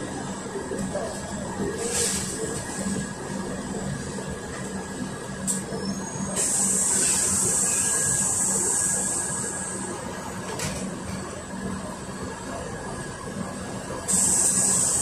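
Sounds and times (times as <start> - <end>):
bus engine hum: 0.0 - 15.0
loud air hiss: 6.4 - 9.8, 14.1 - 15.0.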